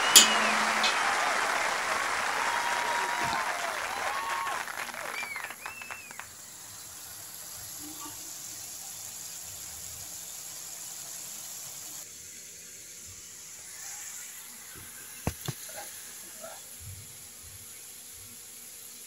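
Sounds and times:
meat sizzling in a wok: 6.3 - 19.0.

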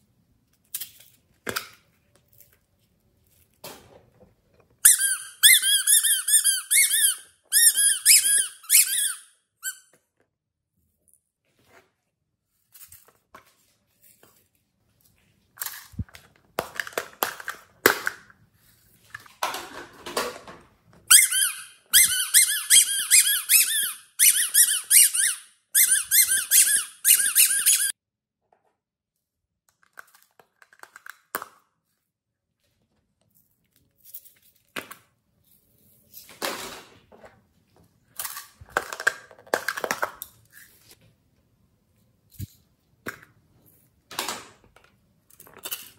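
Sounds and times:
plastic squeaking: 21.1 - 28.0.

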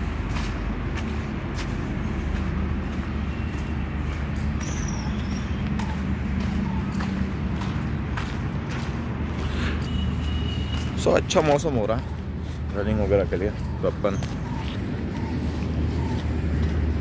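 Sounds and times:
low outdoor rumble: 0.0 - 10.5
footsteps on dirt path: 0.0 - 17.0.

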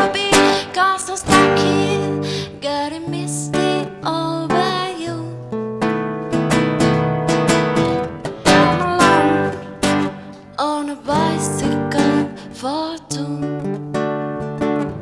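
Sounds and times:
woman singing: 0.0 - 5.6, 8.4 - 13.8
acoustic guitar strumming: 0.0 - 15.0.

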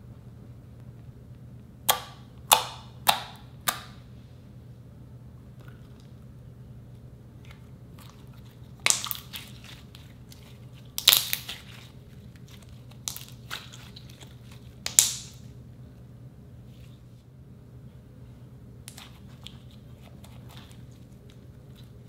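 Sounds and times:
slime popping and crackling: 8.7 - 15.4.

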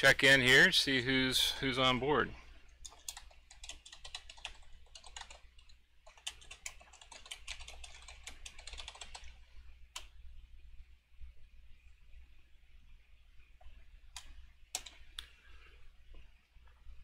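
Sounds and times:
typing on computer keyboard: 2.8 - 9.4, 14.1 - 15.0.

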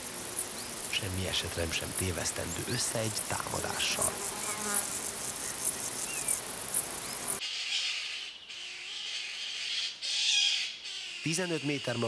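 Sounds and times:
insects buzzing and chirping: 0.0 - 7.4
pine martens chattering: 0.0 - 7.4.

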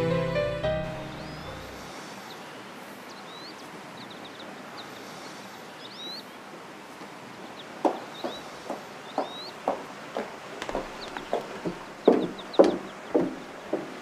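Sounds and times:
small birds chirping: 0.8 - 6.4, 7.4 - 14.0
footsteps on wooden decking: 7.8 - 14.0.

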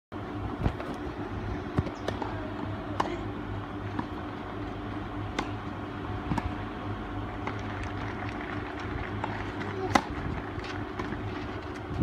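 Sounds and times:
steady background hum: 0.1 - 12.0
tennis balls struck by rackets: 1.7 - 4.4, 5.2 - 6.7, 7.4 - 11.9.

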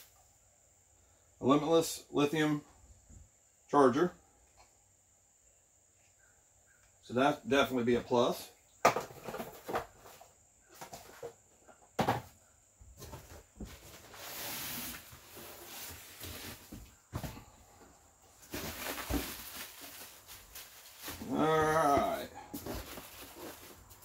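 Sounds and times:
knocks and thunks of parts: 8.8 - 12.4
packaging rustling: 18.4 - 21.3, 22.5 - 24.0.

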